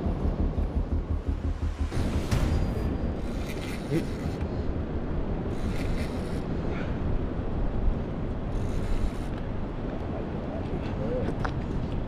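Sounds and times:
low rumble: 0:00.0 - 0:08.5
wind buffeting microphone: 0:00.0 - 0:12.0
bursts of hissing noise: 0:05.4 - 0:06.6.

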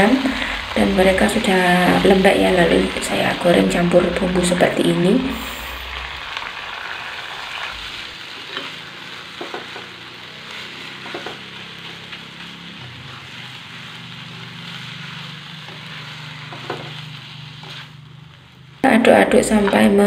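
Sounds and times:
noodles sizzling in wok: 0:00.0 - 0:20.0
spatula scraping and tapping pan: 0:08.5 - 0:09.9, 0:10.8 - 0:12.5, 0:15.6 - 0:18.0.

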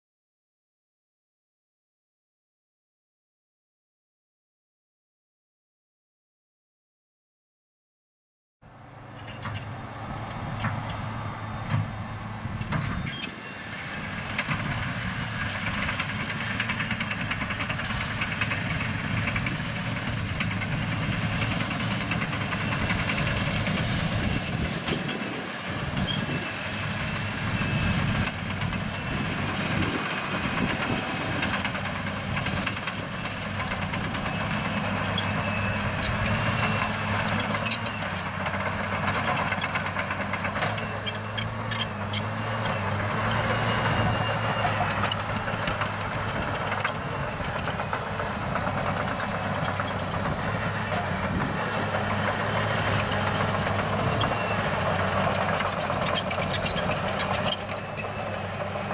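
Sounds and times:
diesel engine running: 0:08.6 - 0:58.9
metallic clanks from tracks and bucket: 0:09.1 - 0:13.4, 0:27.5 - 0:58.9.

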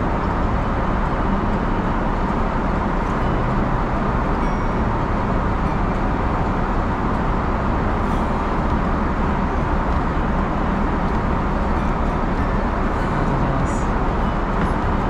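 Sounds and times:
airliner cabin noise: 0:00.0 - 0:15.0.

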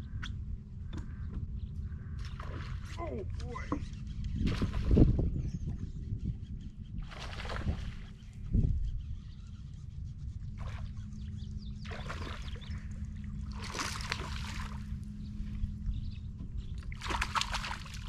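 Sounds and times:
steady low hum: 0:00.0 - 0:18.0
fish splashing at water surface: 0:13.5 - 0:14.8, 0:17.0 - 0:18.0.

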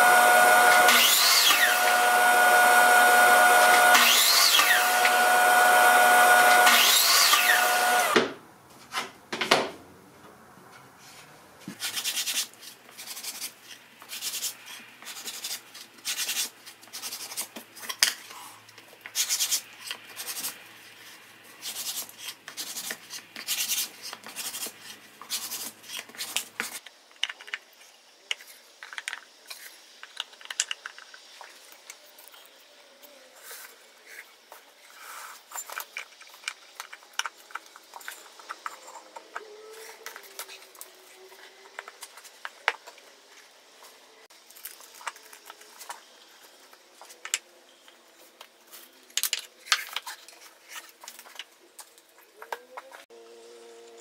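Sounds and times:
dust extractor running: 0:00.0 - 0:08.2
miter saw cutting wood: 0:00.0 - 0:08.2
wooden pieces knocking and rubbing: 0:21.7 - 0:31.6, 0:48.4 - 0:53.0.

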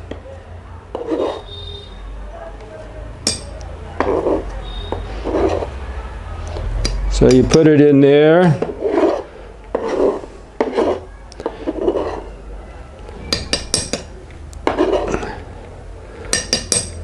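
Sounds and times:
knife scraping cutting board: 0:00.9 - 0:01.6, 0:04.0 - 0:05.8, 0:08.5 - 0:12.4, 0:14.6 - 0:15.4.

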